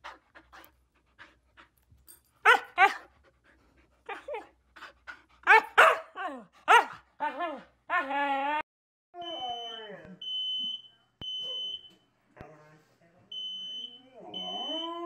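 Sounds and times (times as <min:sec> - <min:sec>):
dog panting: 0:00.0 - 0:05.8
dog whining calls: 0:14.3 - 0:15.0.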